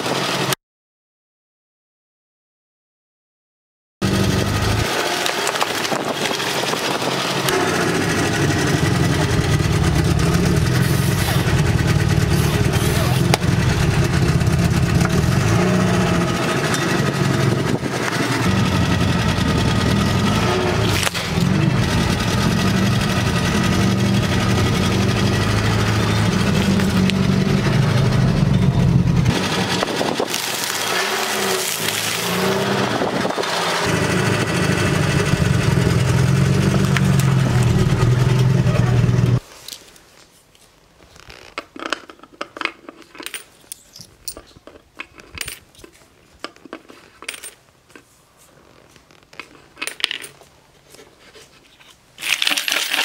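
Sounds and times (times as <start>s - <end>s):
car engine running: 4.0s - 39.4s
tyre crushing plastic bottles: 30.2s - 32.7s, 52.2s - 53.0s.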